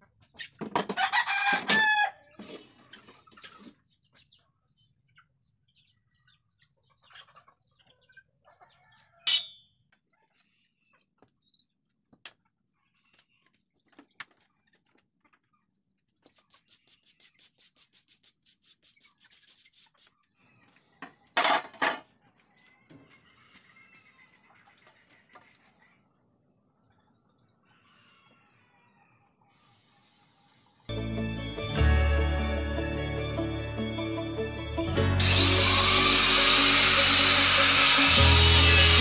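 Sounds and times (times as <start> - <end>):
chickens and rooster: 0.0 - 16.3, 20.0 - 30.9
fast high chirring: 35.2 - 39.0.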